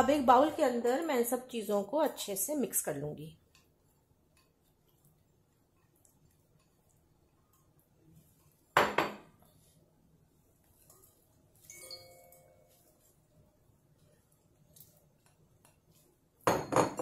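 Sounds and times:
glass bowl clinking and ringing: 11.6s - 12.7s.

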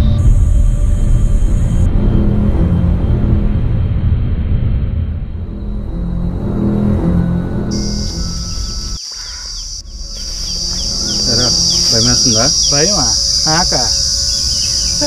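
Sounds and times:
low music bed: 0.0s - 9.0s, 9.6s - 15.0s
insect chirring: 7.7s - 15.0s
man's voice: 11.2s - 14.0s.

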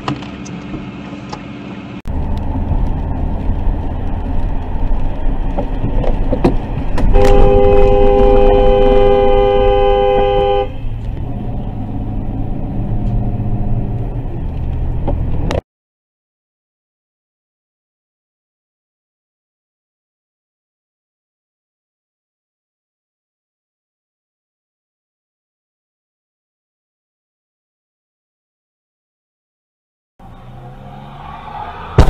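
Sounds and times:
car road and engine noise: 0.0s - 15.6s, 30.2s - 32.0s
two-note car horn: 7.1s - 10.9s.

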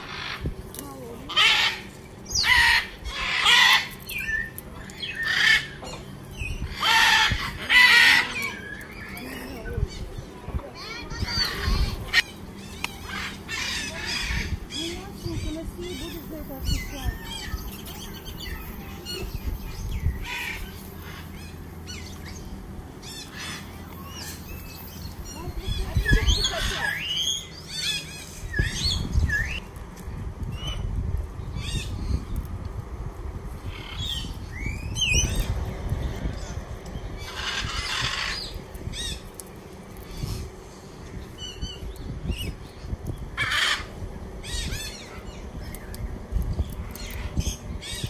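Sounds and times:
bird squawks: 0.0s - 0.5s, 1.3s - 10.1s, 10.9s - 22.4s, 25.3s - 29.6s, 37.2s - 39.3s, 43.4s - 45.4s
birds chirping: 0.0s - 48.0s
low steady hum: 0.0s - 48.0s
bird squawking harshly: 1.3s - 4.0s, 6.7s - 8.7s, 43.4s - 43.9s.

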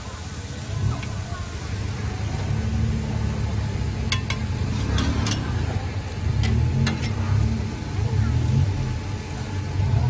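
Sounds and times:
steady low rumble: 0.4s - 10.0s
metal spatula clinking on pan: 4.1s - 4.5s.

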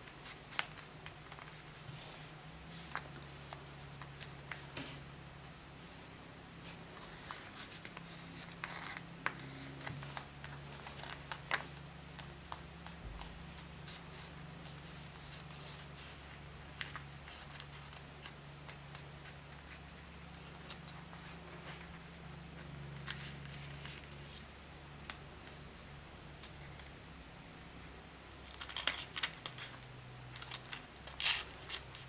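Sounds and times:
low steady hum: 0.0s - 32.0s
paper rustling and crinkling: 6.7s - 24.5s, 28.4s - 32.0s.

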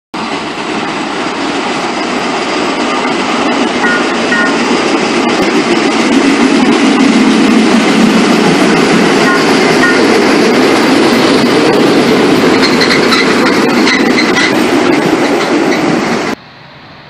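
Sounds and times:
rail vehicle rumbling: 0.1s - 17.0s
high squeaks: 12.5s - 15.9s.

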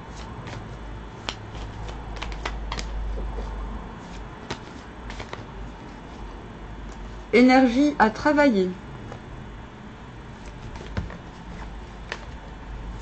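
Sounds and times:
cards being shuffled: 0.0s - 6.3s, 10.4s - 12.5s.

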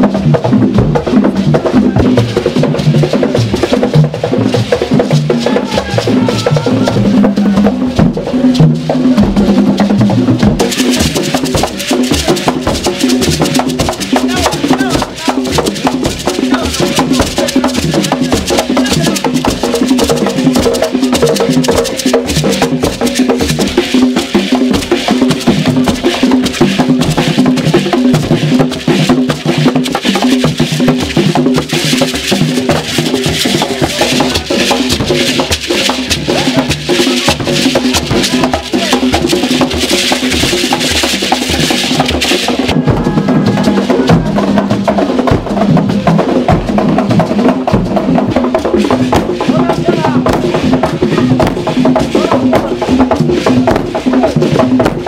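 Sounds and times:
drums playing fast rhythm: 0.0s - 55.0s
gourd shaker rattling: 2.2s - 45.9s.

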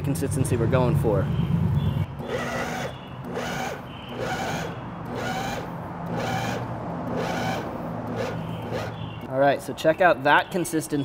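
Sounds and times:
food processor whirring: 2.2s - 9.0s.

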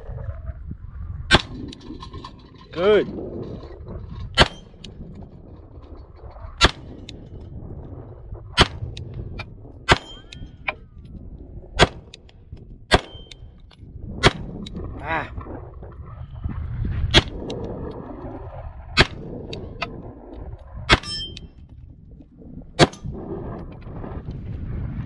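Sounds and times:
pistol shots: 12.9s - 13.3s.

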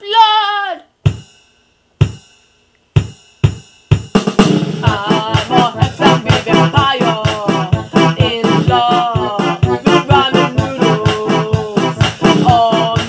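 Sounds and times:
drum hits: 1.0s - 13.0s
full band playing: 4.3s - 13.0s.

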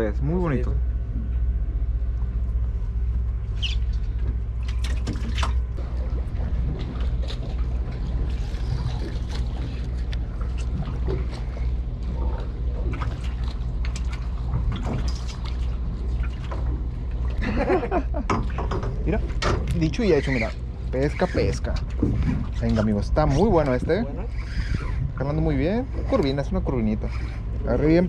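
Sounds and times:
low mechanical hum: 0.0s - 28.0s
water lapping against boat hull: 1.1s - 28.0s
small splashes: 12.4s - 17.4s.

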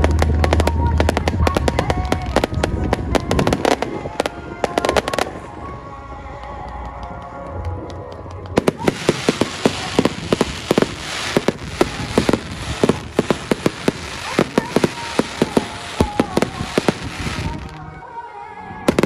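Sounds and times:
fireworks bursting: 0.0s - 5.6s, 8.2s - 17.9s
fireworks crackling: 0.0s - 18.0s.

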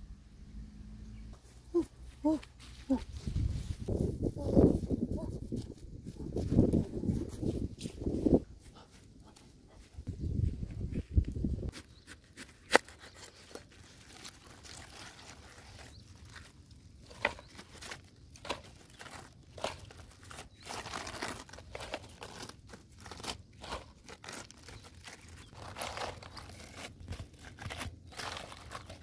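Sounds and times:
leaves rustling: 1.4s - 8.7s, 10.4s - 29.0s
cabbage leaves snapping: 12.3s - 29.0s.

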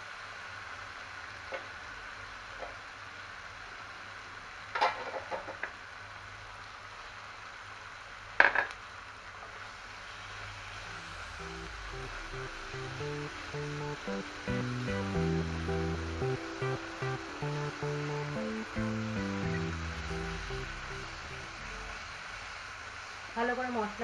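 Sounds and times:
low steady sizzle: 0.0s - 24.0s
background music: 10.9s - 22.0s.

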